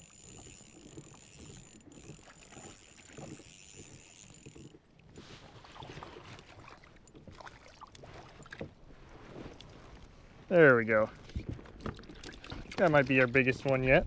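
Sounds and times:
fishing reel cranking: 0:00.0 - 0:04.8
water lapping: 0:00.0 - 0:14.0.

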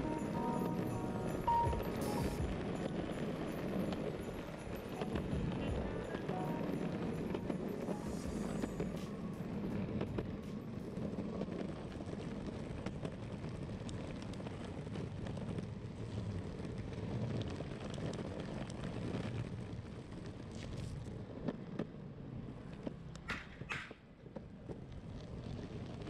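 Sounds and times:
wheels rumbling on rough road: 0:00.0 - 0:26.0.

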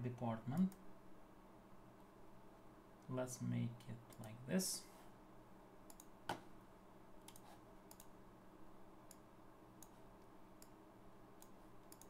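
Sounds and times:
low steady room hum: 0:00.0 - 0:12.0
faint computer mouse clicks: 0:05.9 - 0:06.4, 0:07.3 - 0:08.2, 0:11.4 - 0:12.0.

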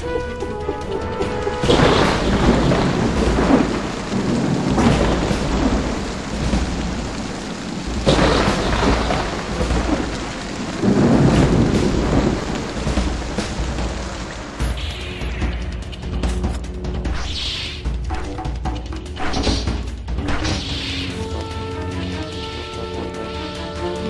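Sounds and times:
thunder rolling: 0:00.0 - 0:17.3
heavy rain: 0:00.0 - 0:24.0.

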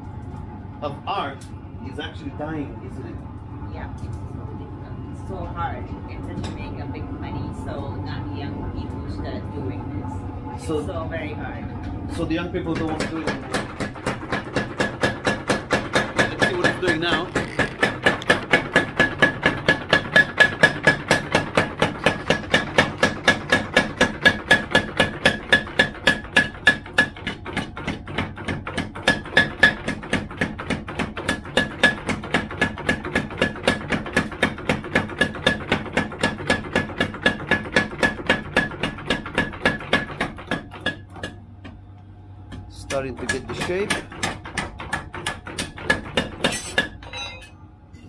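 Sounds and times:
hammer striking blade on anvil: 0:42.9 - 0:48.0.

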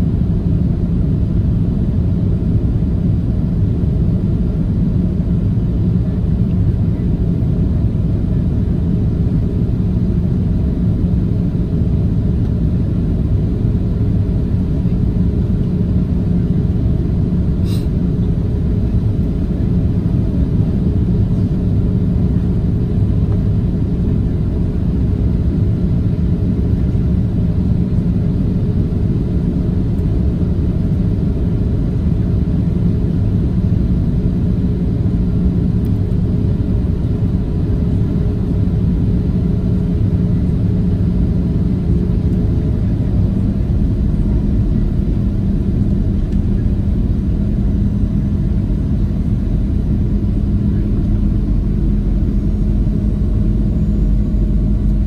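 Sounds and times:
airplane cabin engine rumble: 0:00.0 - 0:55.0.

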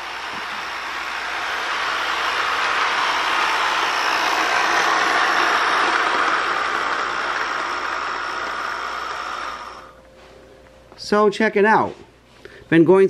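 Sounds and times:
toy train rumbling on track: 0:00.0 - 0:09.9.

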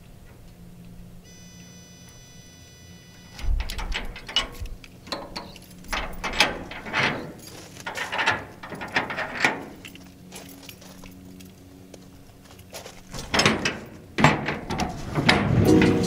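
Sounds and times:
metal door bars clanking: 0:03.4 - 0:10.0, 0:13.2 - 0:16.0.

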